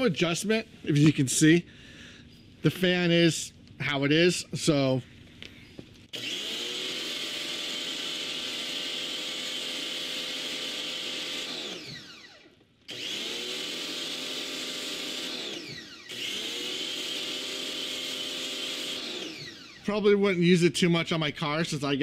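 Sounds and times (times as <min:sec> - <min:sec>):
pressure washer motor and pump: 0:05.9 - 0:20.2
motor winding down whine: 0:06.0 - 0:20.2.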